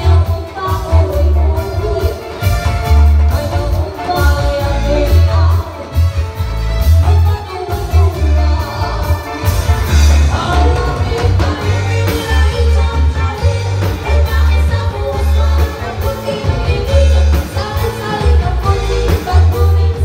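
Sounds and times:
women singing into microphones: 0.0s - 2.4s, 3.3s - 6.0s, 7.0s - 20.0s
drums: 0.0s - 20.0s
electric guitar: 0.0s - 20.0s
keyboard: 0.0s - 20.0s.

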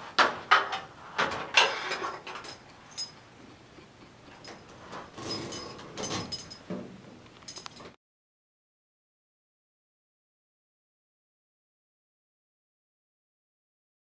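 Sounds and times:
metal scraping and rattling: 4.3s - 6.7s.

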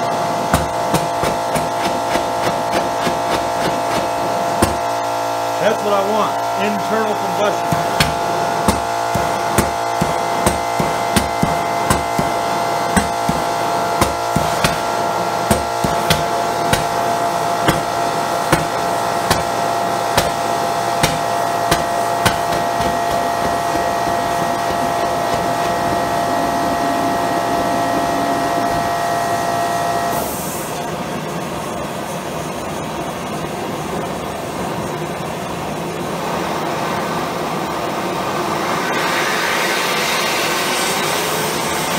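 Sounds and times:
burner roaring with whistle: 4.2s - 30.7s.

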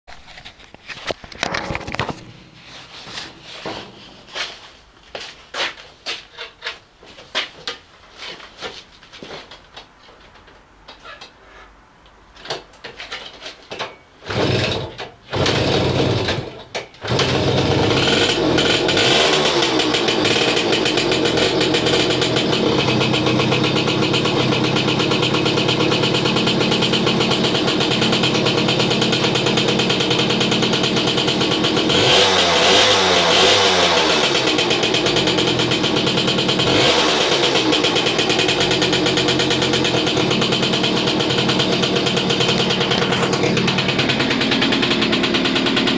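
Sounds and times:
moped engine revving: 14.2s - 45.9s
moped engine starting and idling: 14.2s - 45.9s.

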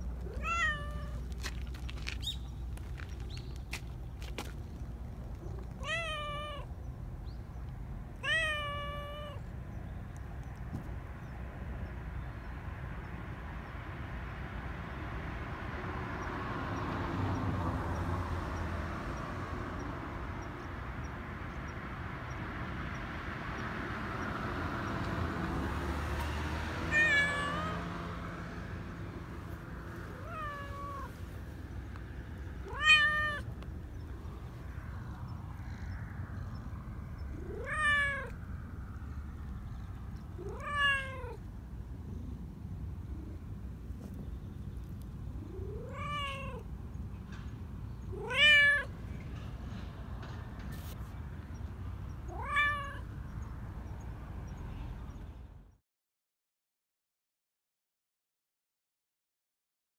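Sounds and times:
cat meowing: 0.2s - 1.3s, 5.4s - 6.7s, 8.2s - 9.5s, 26.9s - 27.9s, 30.1s - 31.2s, 32.6s - 33.6s, 37.3s - 38.4s, 40.4s - 41.4s, 45.4s - 46.7s, 48.1s - 48.9s, 52.2s - 53.1s.

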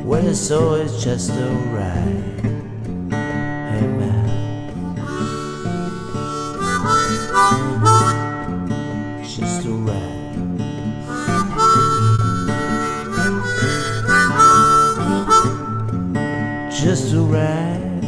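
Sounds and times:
acoustic guitar: 0.0s - 18.0s
harmonica melody: 4.6s - 9.7s, 10.6s - 16.8s.

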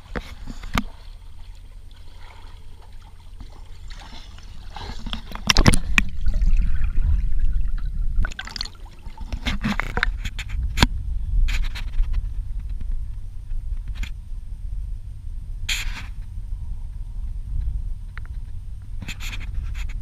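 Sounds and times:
pool water sloshing: 0.0s - 10.1s
underwater gurgling: 0.0s - 10.2s.

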